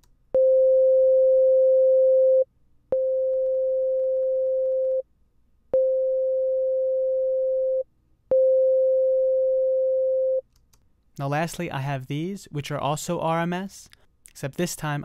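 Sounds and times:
sine-wave test tone: 0.4s - 5.0s, 5.7s - 10.4s
click: 10.5s - 10.9s.

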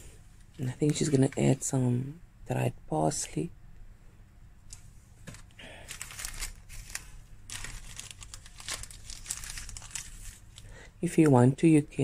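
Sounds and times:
plastic packet crinkling: 5.3s - 10.9s.

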